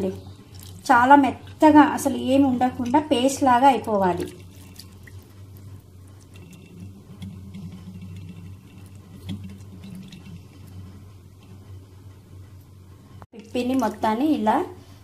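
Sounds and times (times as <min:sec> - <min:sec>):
steady low hum: 0:00.0 - 0:15.0
hand squelching wet pulp: 0:00.2 - 0:01.7, 0:03.5 - 0:10.8.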